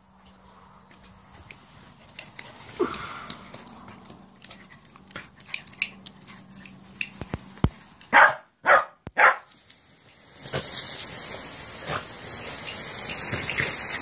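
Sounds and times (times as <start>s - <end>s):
dog barking: 8.1s - 9.5s.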